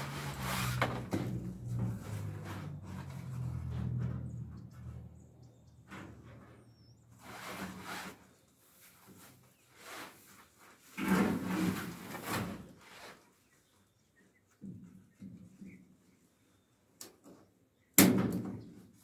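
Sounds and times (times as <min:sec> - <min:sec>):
blind rustling and scraping: 0:00.0 - 0:04.5, 0:07.2 - 0:13.4.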